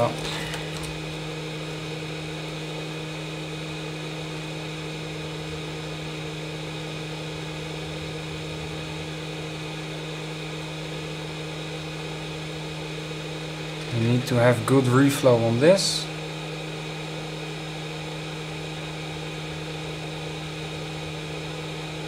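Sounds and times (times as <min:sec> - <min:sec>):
small electric motor humming: 0:00.0 - 0:02.9.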